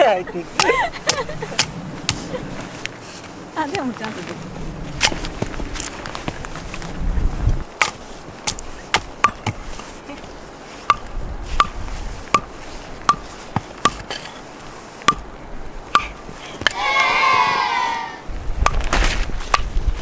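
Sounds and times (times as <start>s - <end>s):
hammer striking steel tent peg: 13.1s - 14.0s.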